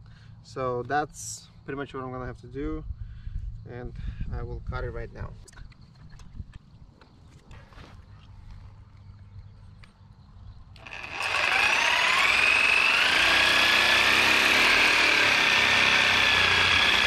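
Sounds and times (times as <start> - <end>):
reciprocating saw cutting pipe: 10.8 - 17.0.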